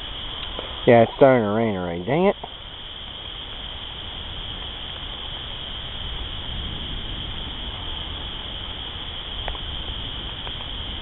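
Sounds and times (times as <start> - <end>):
crickets chirping: 0.0 - 11.0
light rain hissing: 0.0 - 11.0.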